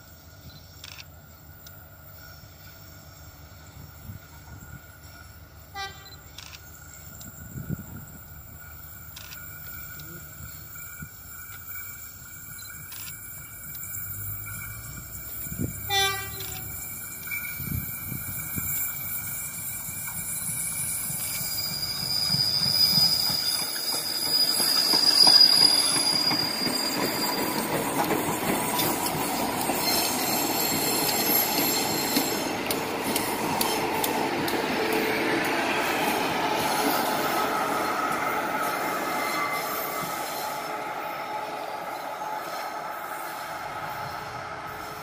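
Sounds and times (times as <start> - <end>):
train rumbling past: 0.0 - 45.0
high wheel squeal: 3.1 - 34.2, 34.8 - 45.0
train horn toot: 5.7 - 6.2, 15.7 - 16.8.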